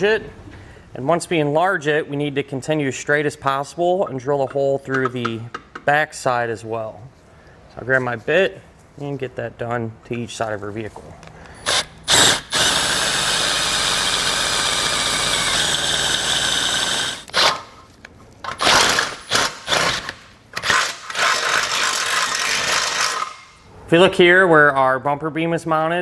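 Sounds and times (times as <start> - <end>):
cordless drill boring through steel: 11.6 - 17.6.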